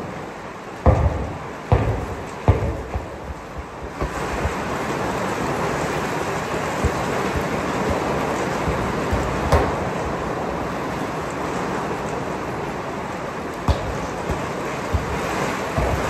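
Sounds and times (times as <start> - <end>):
heavy rain on a roof: 0.0 - 16.0
light knocks: 0.8 - 4.7, 13.7 - 16.0
football kicked thump: 0.8 - 5.0, 6.8 - 10.0, 13.7 - 16.0.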